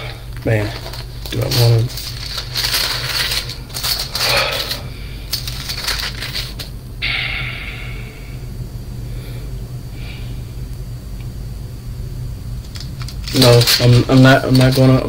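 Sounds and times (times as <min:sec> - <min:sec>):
low hum: 0:00.0 - 0:15.0
small objects clicking and clinking: 0:00.8 - 0:06.7, 0:12.6 - 0:15.0.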